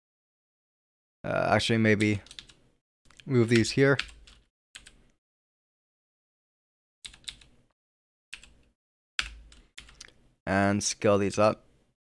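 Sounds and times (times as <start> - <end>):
computer keyboard keystrokes: 2.2 - 5.0, 7.1 - 7.5, 8.4 - 10.2.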